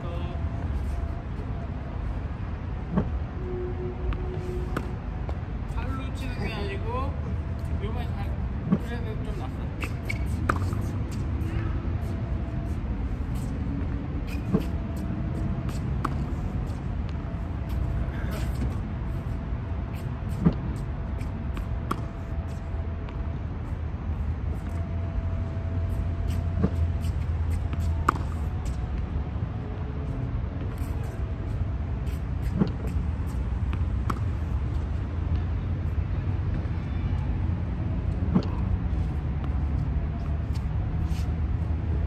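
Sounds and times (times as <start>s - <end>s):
tennis balls hit with rackets: 9.8s - 11.3s, 26.2s - 28.8s.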